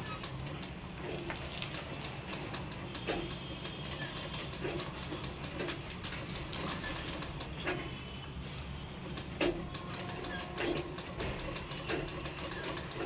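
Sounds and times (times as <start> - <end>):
sewing machine hum: 1.8 - 7.5, 9.6 - 13.0.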